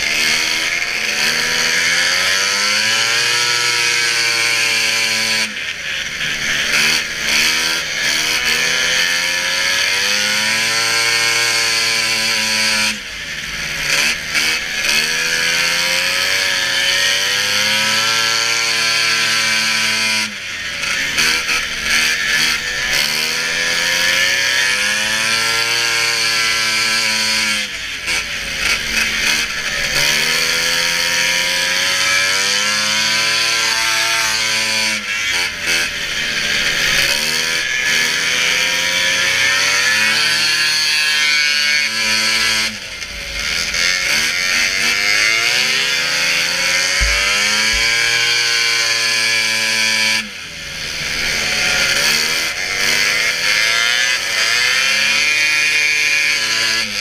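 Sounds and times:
snowmobile engine revving: 0.0s - 57.0s.

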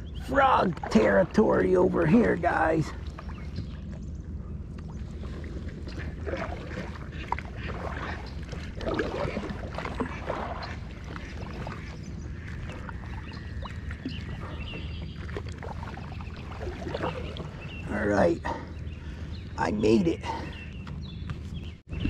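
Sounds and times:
steady low rumble: 0.0s - 22.0s
paddle splashing in water: 4.9s - 17.8s.

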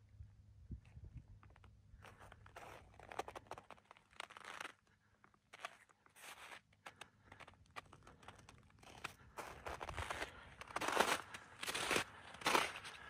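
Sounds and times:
footsteps crunching on icy snow: 5.5s - 13.0s.

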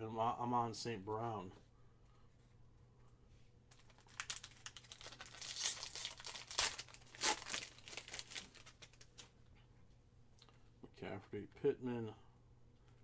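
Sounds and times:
foil pack tearing and crinkling: 3.8s - 9.3s.

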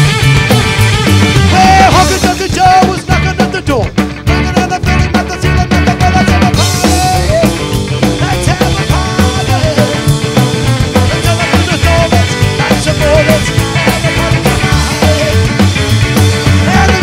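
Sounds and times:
drum kit: 0.0s - 17.0s
lead melody line: 0.0s - 17.0s
upright bass: 0.0s - 17.0s.

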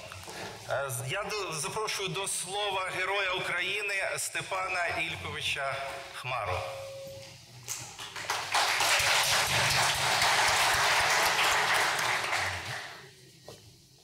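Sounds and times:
audience applauding: 8.0s - 13.0s.

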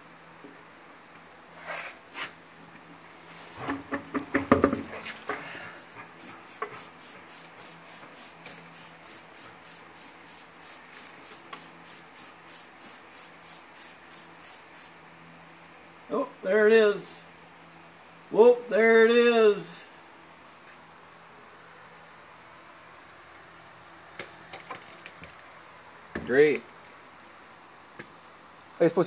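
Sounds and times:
tire knocking and rubbing: 3.2s - 5.3s
spray bottle squirting: 6.2s - 15.0s.

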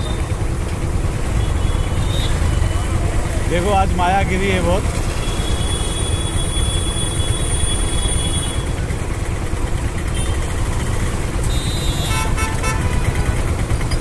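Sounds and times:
road traffic rumble: 0.0s - 14.0s
vehicle horn toots: 11.4s - 13.4s.

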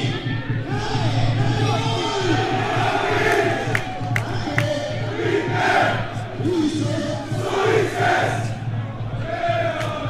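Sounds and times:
crowd shouting and chanting: 0.0s - 10.0s.

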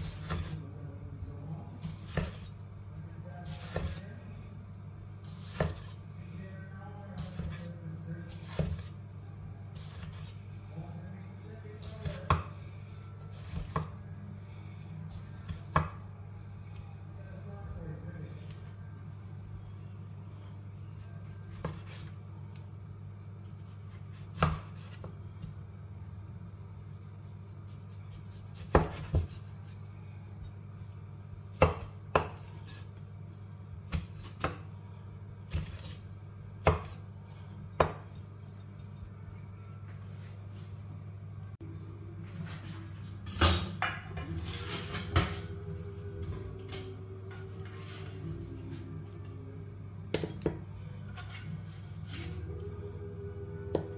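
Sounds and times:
knife slicing tomato: 0.0s - 0.6s, 1.8s - 2.6s, 3.4s - 4.1s, 5.2s - 6.0s, 8.3s - 9.0s, 9.7s - 10.4s, 20.8s - 22.2s, 26.7s - 29.9s
steady low hum: 0.0s - 53.9s
knife chopping on wooden board: 1.9s - 2.5s, 5.4s - 6.0s, 23.8s - 25.1s, 28.1s - 29.4s, 31.5s - 32.8s, 36.6s - 37.0s, 37.8s - 38.1s.

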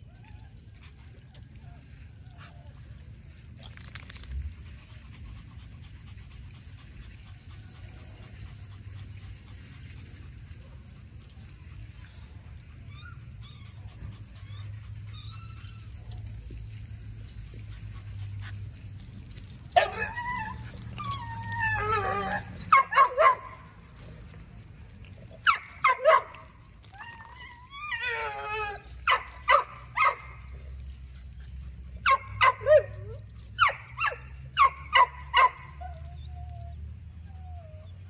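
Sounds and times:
dog whining: 19.8s - 24.2s, 25.4s - 30.4s, 32.1s - 38.0s.

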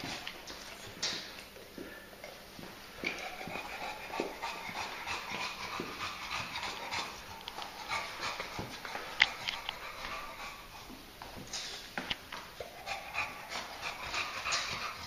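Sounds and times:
dog panting hard: 0.0s - 0.8s, 3.0s - 11.0s, 12.6s - 15.0s.

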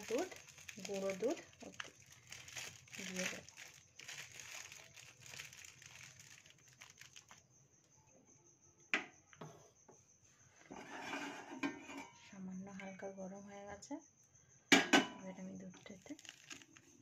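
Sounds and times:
packet crinkling and rustling: 0.0s - 7.4s, 15.9s - 17.0s.

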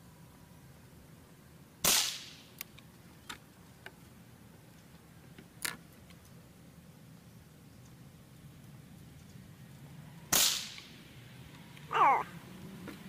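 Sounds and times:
rifle shot: 1.8s - 2.4s, 10.3s - 10.8s.

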